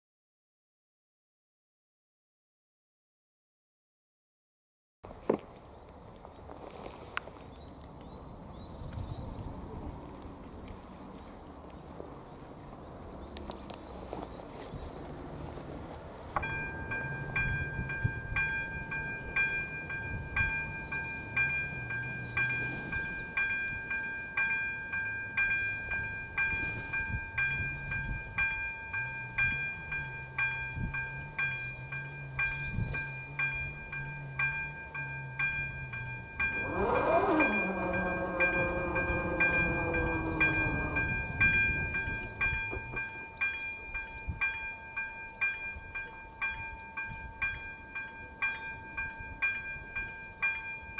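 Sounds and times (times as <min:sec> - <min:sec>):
level-crossing bell ringing: 0:16.4 - 0:50.9.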